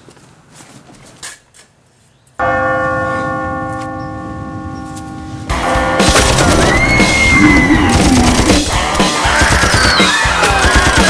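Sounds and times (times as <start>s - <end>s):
bell ringing: 2.4s - 6.4s
loud music: 5.5s - 11.0s.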